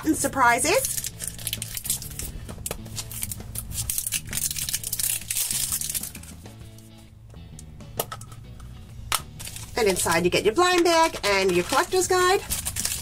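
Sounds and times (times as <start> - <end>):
background music: 0.0 - 13.0
plastic seal crinkling and tearing: 0.8 - 6.3, 9.4 - 10.1, 11.0 - 13.0.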